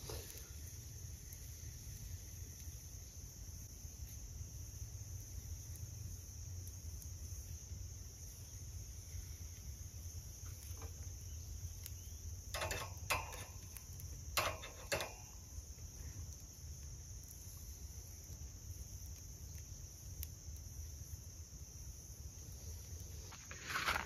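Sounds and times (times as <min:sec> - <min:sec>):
insects chirring: 0:00.0 - 0:24.0
metal tongs clanking on grill grate: 0:12.4 - 0:15.6.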